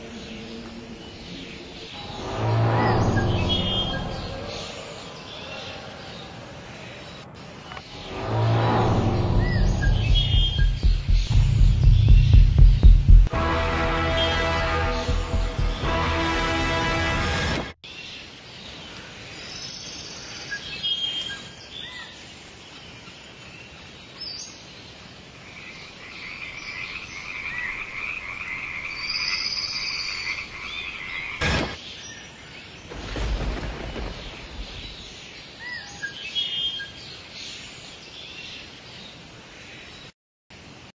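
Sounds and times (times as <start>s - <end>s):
birds chirping: 0.0s - 16.0s, 17.9s - 40.1s
sharp hit: 7.8s - 13.9s, 31.4s - 31.8s
low thud: 9.3s - 13.3s, 32.9s - 35.2s
frogs croaking: 25.3s - 31.5s.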